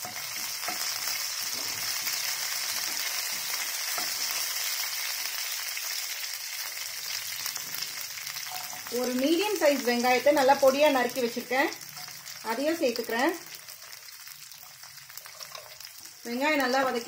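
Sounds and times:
oil sizzling in a pan: 0.0s - 17.0s
spatula stirring: 8.4s - 9.2s, 13.6s - 16.1s.

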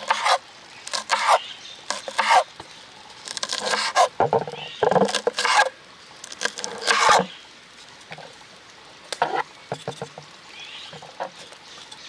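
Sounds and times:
knife chopping on wooden board: 0.0s - 2.4s.

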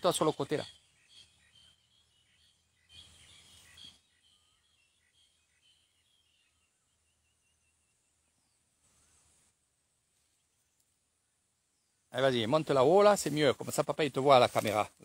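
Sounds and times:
soft rustle: 8.8s - 11.0s, 13.1s - 15.0s.

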